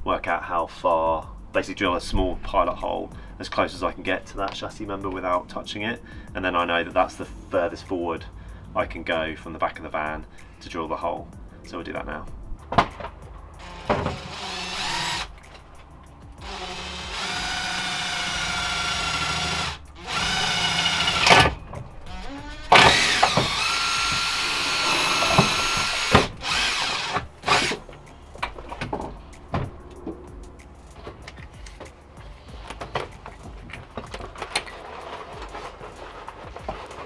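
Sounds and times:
cordless drill whining: 13.6s - 15.3s, 16.4s - 27.8s.

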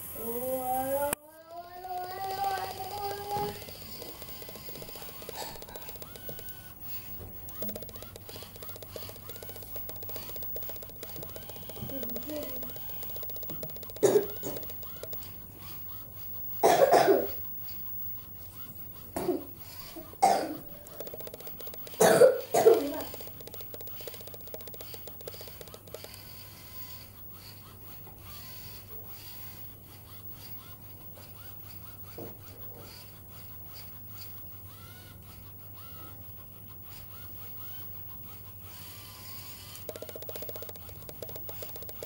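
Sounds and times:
toy motors buzzing: 0.0s - 42.0s
person coughing: 14.0s - 14.6s, 16.6s - 17.4s, 20.2s - 20.7s, 21.9s - 23.1s.

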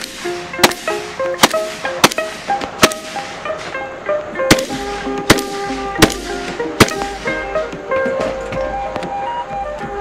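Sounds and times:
rifle gunshots: 0.0s - 3.2s, 4.5s - 7.3s
background music: 0.0s - 10.0s.

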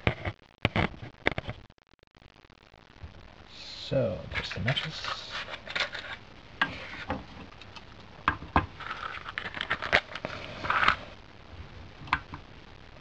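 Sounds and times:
matches rattling in a box: 8.8s - 11.0s.

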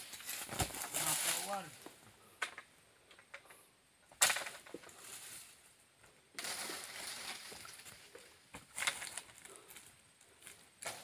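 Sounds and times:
scraping and rustling through dry fronds: 0.0s - 1.9s, 4.3s - 5.7s, 6.4s - 11.0s.

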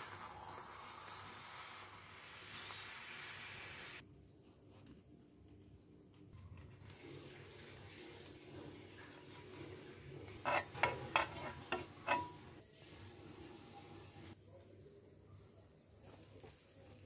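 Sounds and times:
butter sizzling in a pan: 0.0s - 4.0s, 9.8s - 12.6s
spoon scraping and tapping pan: 10.4s - 12.5s.

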